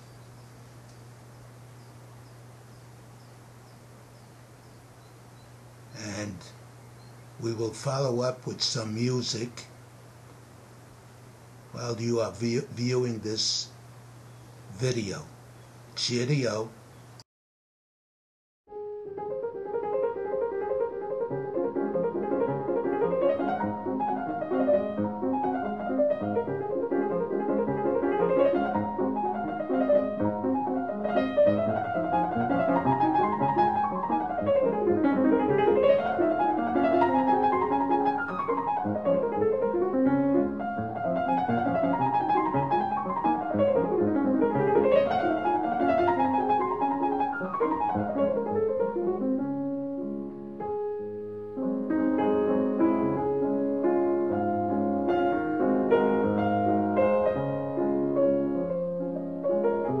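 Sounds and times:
piano music: 7.4 - 9.6, 18.7 - 60.0.

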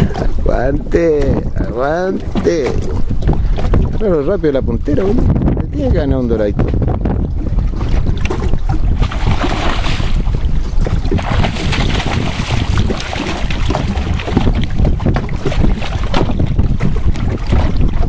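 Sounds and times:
choppy river water: 0.0 - 18.0
wind buffeting microphone: 0.0 - 18.0
fish splashing at surface: 9.0 - 10.4, 11.1 - 14.8.

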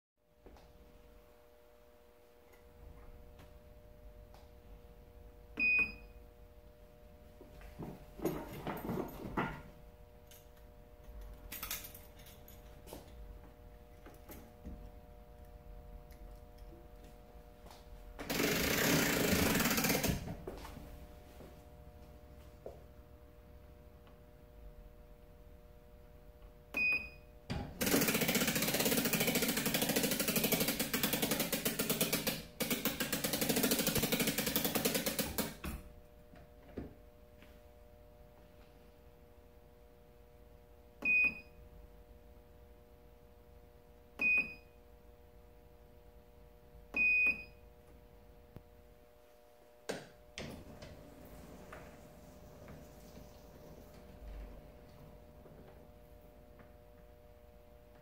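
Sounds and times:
fast mechanical rattle: 18.2 - 20.3, 27.8 - 35.6.

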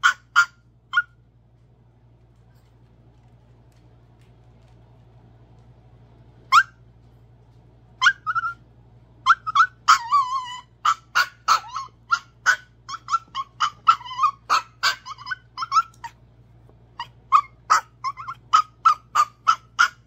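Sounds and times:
small dog yipping: 0.0 - 1.2, 6.5 - 6.8, 8.0 - 8.6, 9.2 - 16.2, 17.0 - 20.0.

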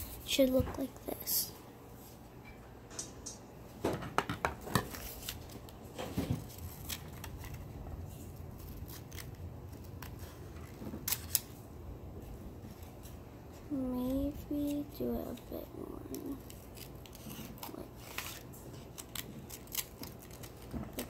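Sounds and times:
scissors snipping paper: 6.5 - 11.6, 14.0 - 21.0.

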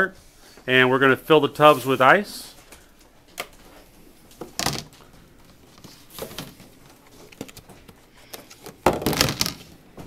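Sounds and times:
plastic tubs knocking and rustling: 2.7 - 10.0.

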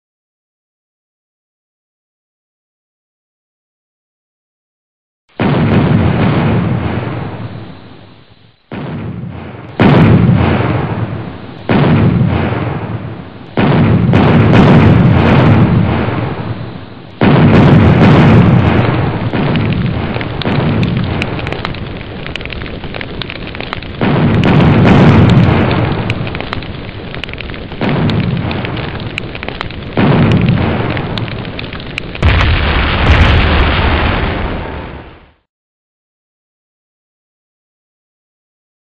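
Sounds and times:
heavy explosion booms: 5.4 - 7.9, 8.7 - 35.4.

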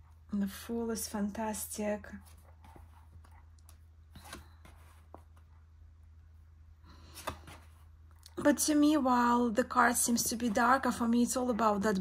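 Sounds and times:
cards sliding and clicking: 7.0 - 7.7.

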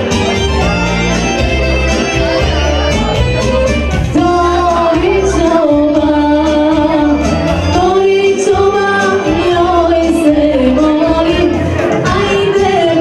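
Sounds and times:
amplified backing music: 0.0 - 13.0
woman singing into microphone: 4.1 - 13.0.

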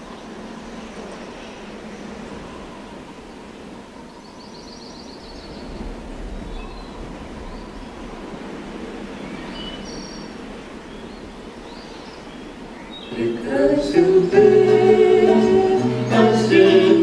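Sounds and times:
background hiss: 0.0 - 17.0.

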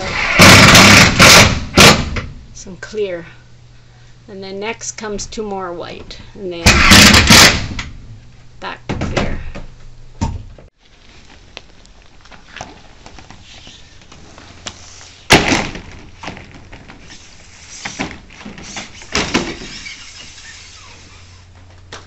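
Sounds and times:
plastic roofing sheets clattering: 10.8 - 21.7.

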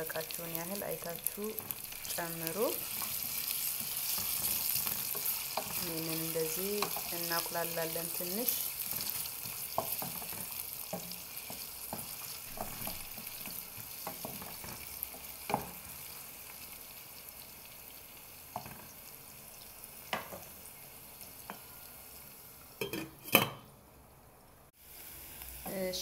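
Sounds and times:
onions sizzling in oil: 0.0 - 22.9, 24.8 - 26.0
metal lid clanking on pot: 22.8 - 23.7.

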